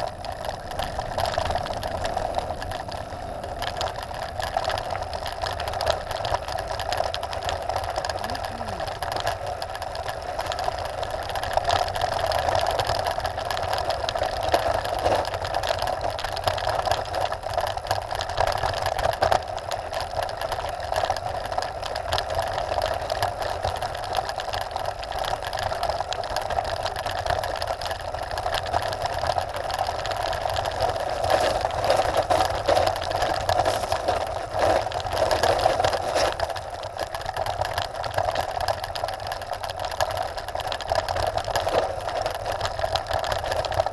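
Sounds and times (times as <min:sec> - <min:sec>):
tyres rumbling on gravel: 0:00.0 - 0:43.9
stones knocking and rattling: 0:22.2 - 0:43.9.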